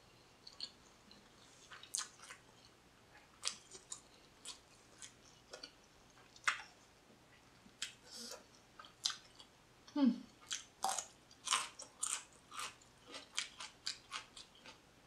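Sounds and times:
chewing mouth sounds: 0.4s - 6.7s.

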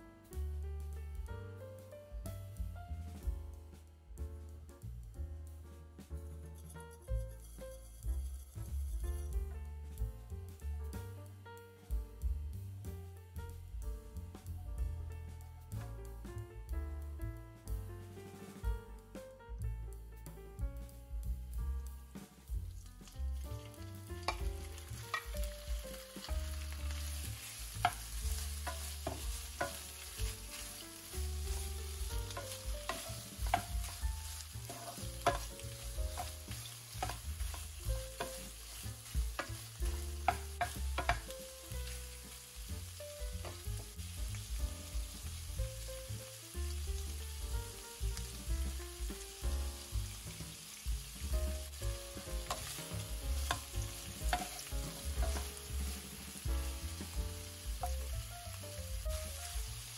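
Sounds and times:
shrimp sizzling in frying pan: 6.6s - 19.1s, 21.2s - 59.9s
spatula clicking against pan: 32.3s - 38.5s, 39.1s - 41.3s, 53.4s - 55.5s.

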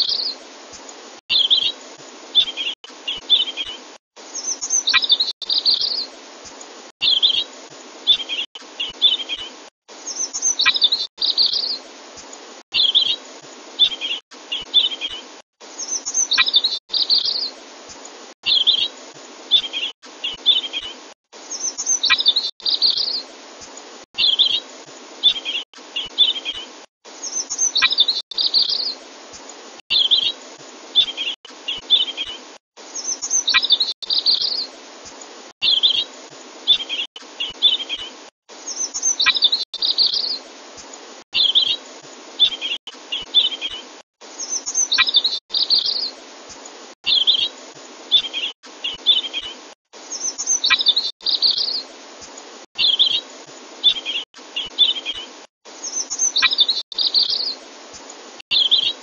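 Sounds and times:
bird chirps: 0.0s - 0.4s, 1.3s - 1.8s, 2.4s - 6.1s, 7.0s - 7.5s, 8.1s - 11.8s, 12.7s - 13.2s, 13.8s - 17.6s, 18.4s - 18.9s, 19.5s - 23.2s, 24.2s - 24.6s, 25.2s - 29.0s, 29.9s - 30.4s, 31.0s - 32.4s, 33.0s - 34.7s, 35.6s - 36.1s, 36.7s - 40.4s, 41.4s - 41.8s, 42.4s - 46.2s, 47.0s - 47.5s, 48.1s - 51.9s, 52.8s - 53.2s, 53.8s - 57.6s, 58.5s - 59.0s
bird song phrases: 0.0s - 0.4s, 1.3s - 1.8s, 2.4s - 3.8s, 4.4s - 6.1s, 7.0s - 7.5s, 8.1s - 11.8s, 12.7s - 13.2s, 13.8s - 17.6s, 18.4s - 18.9s, 19.5s - 23.3s, 24.2s - 24.6s, 25.2s - 29.0s, 29.9s - 30.4s, 31.0s - 32.4s, 33.0s - 34.7s, 35.6s - 36.1s, 36.7s - 40.4s, 41.4s - 41.8s, 42.4s - 46.2s, 47.0s - 47.5s, 48.1s - 51.9s, 52.8s - 53.2s, 53.8s - 57.6s, 58.5s - 59.0s
steady hiss: 0.0s - 59.0s.

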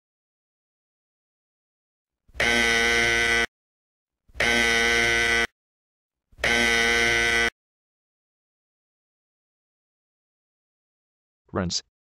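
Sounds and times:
electronic buzzer beeping: 2.4s - 3.5s, 4.4s - 5.5s, 6.4s - 7.6s.

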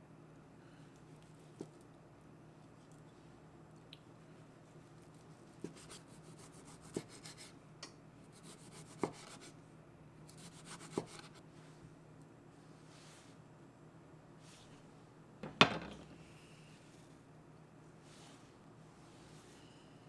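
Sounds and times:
knife sawing through tomato: 5.0s - 7.5s, 8.4s - 9.5s, 10.3s - 11.4s
knife knocking on wooden board: 15.4s - 16.1s.

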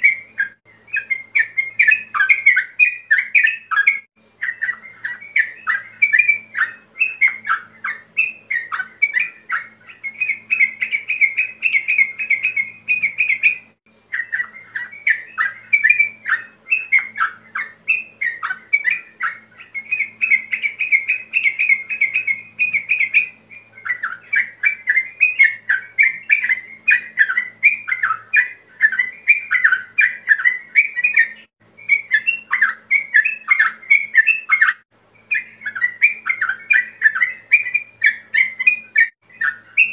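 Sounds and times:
bird singing bubbly chatter: 0.0s - 39.9s.

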